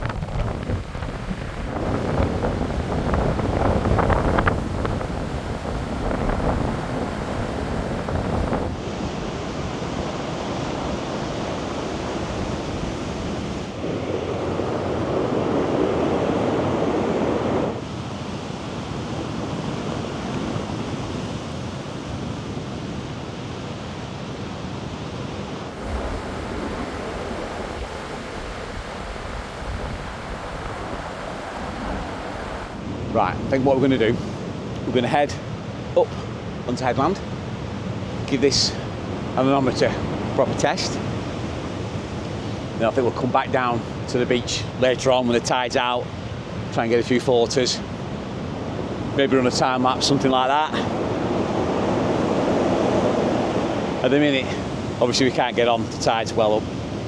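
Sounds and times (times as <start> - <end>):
wind buffeting microphone: 0.0 - 36.6
surf crashing on shore: 0.0 - 57.0.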